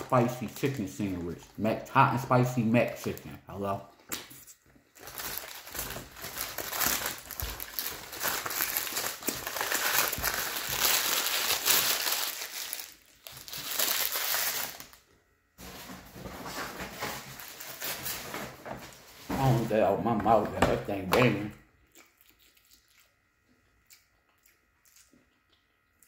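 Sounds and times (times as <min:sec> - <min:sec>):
paper wrapper being crumpled: 0:05.0 - 0:15.0.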